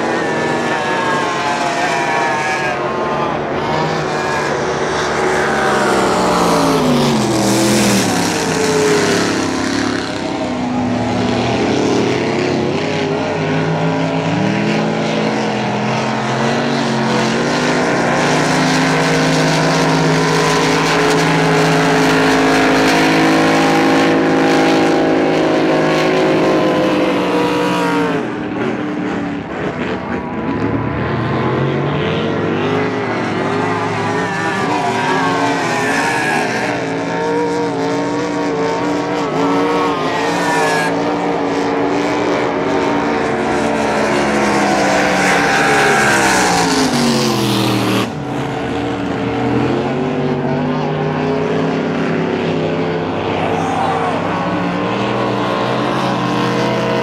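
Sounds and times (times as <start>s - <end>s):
race boat outboard engines: 0.0s - 57.0s.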